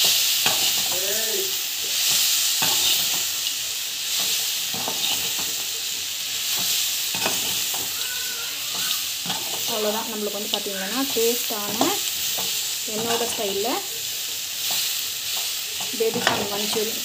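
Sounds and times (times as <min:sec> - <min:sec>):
spoon scraping and knocking pan: 0:00.0 - 0:01.1, 0:01.9 - 0:03.4, 0:04.1 - 0:05.7, 0:06.4 - 0:08.0, 0:08.7 - 0:13.9, 0:14.6 - 0:17.0
vegetables sizzling in a pan: 0:00.0 - 0:17.0.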